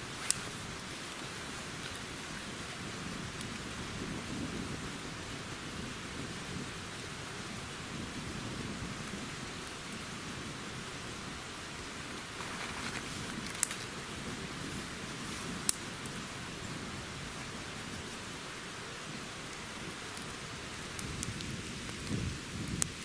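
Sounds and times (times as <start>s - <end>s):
fire hissing and crackling: 0.0s - 23.0s
sharp fire pops: 15.4s - 16.2s, 19.5s - 23.0s.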